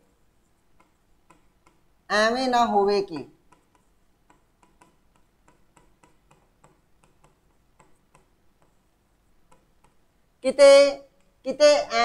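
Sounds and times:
marker tapping on whiteboard: 0.4 - 10.2.

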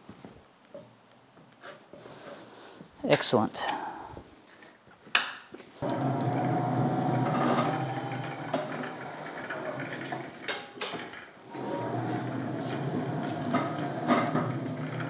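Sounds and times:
electric motor hum with whine: 5.8 - 10.3.

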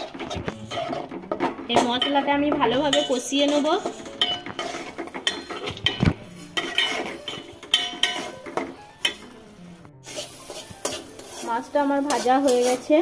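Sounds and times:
metal spoon scraping a pot: 0.0 - 9.4, 10.0 - 13.0.

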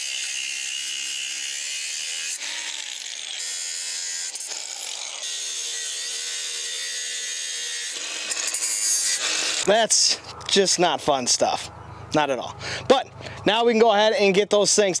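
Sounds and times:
angle grinder cutting metal: 0.0 - 10.3.

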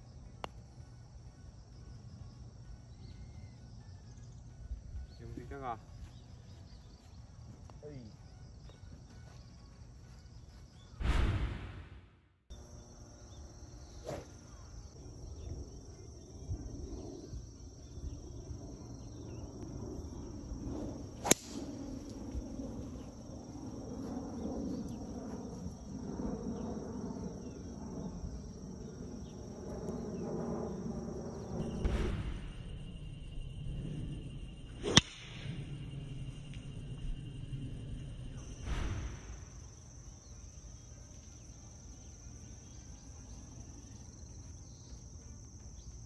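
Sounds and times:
low rumble: 14.8 - 39.5
golf club striking ball: 21.2 - 21.6, 34.8 - 35.4.

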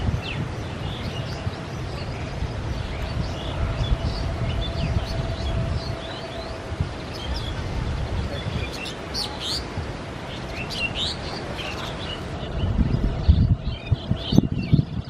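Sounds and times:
small birds chirping: 0.0 - 15.0
train rumbling: 1.4 - 9.1.

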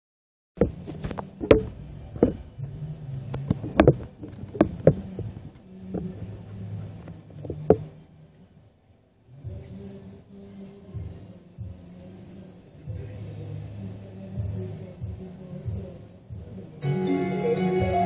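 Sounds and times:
handling knocks and bumps: 0.6 - 6.2
low steady hum: 0.6 - 18.0.

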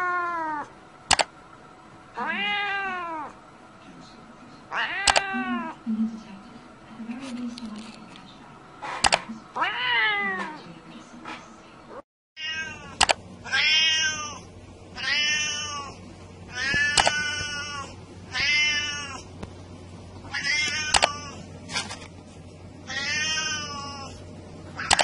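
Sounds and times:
sharp clicks: 1.1 - 1.3, 13.0 - 13.2, 20.9 - 21.2
cat meowing: 2.2 - 3.4, 9.6 - 10.6, 12.4 - 19.2, 20.3 - 21.4, 22.9 - 24.2.

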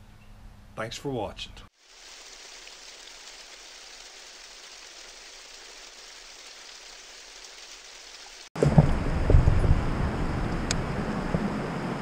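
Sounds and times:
wind rumble on microphone: 8.6 - 12.0.

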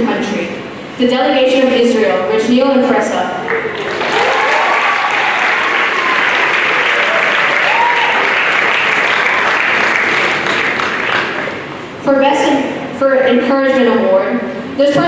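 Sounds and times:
audience applauding: 3.5 - 11.8.

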